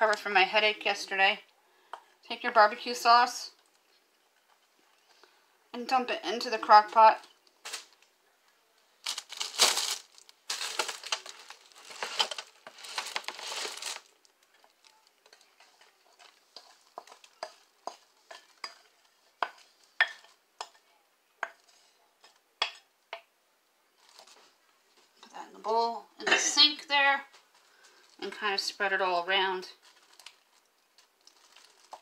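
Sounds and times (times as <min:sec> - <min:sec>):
plastic liner crinkling: 0:07.2 - 0:08.1, 0:09.0 - 0:20.3, 0:24.0 - 0:25.1, 0:29.8 - 0:32.0.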